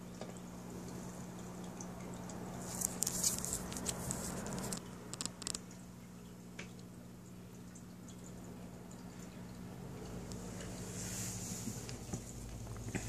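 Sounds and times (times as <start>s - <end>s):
sharp crackling clicks: 2.9s - 5.8s.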